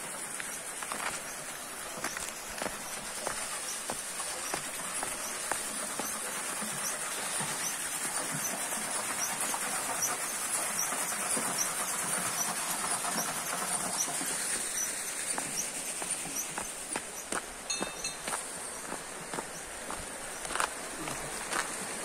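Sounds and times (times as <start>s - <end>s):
faint high chirps: 12.4s - 19.7s.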